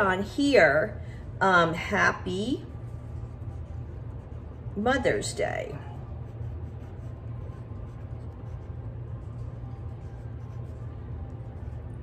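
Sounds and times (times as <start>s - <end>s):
low hum: 0.0s - 12.0s
pencil scratching on paper: 2.9s - 11.0s.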